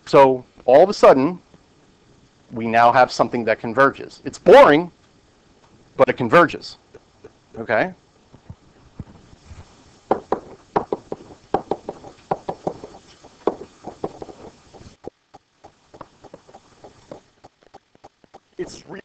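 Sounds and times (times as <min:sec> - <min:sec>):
pen tapping on whiteboard: 0:10.1 - 0:18.5.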